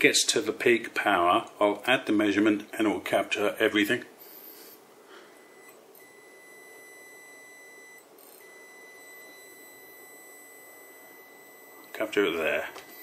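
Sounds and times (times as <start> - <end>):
steady high-pitched test tone: 5.3 - 13.0.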